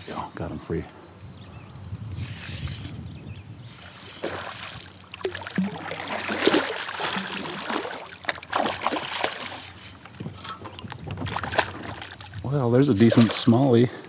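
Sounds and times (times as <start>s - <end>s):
fish splashing at surface: 4.2s - 9.8s.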